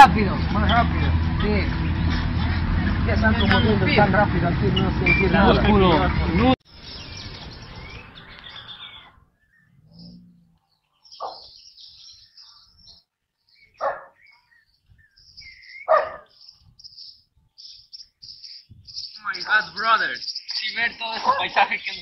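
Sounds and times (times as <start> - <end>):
birds chirping: 0.0 - 22.0
dog barking: 11.2 - 11.5, 13.8 - 14.2, 15.9 - 16.3.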